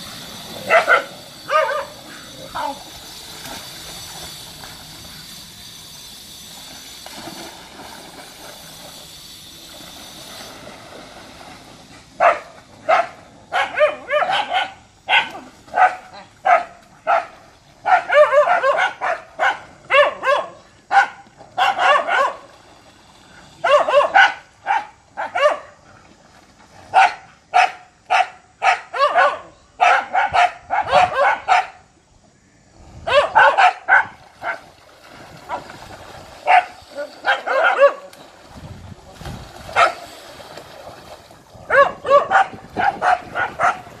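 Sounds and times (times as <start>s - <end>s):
dogs barking: 0.6s - 2.8s, 12.2s - 22.5s, 23.6s - 25.8s, 26.9s - 31.8s, 33.1s - 34.6s, 36.4s - 38.1s, 39.8s - 40.0s, 41.7s - 44.0s.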